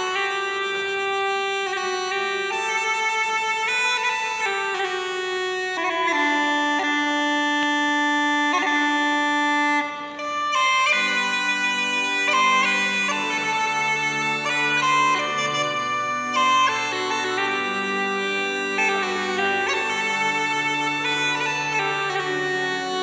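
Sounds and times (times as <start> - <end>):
uilleann pipes playing slow air: 9.7 - 23.0.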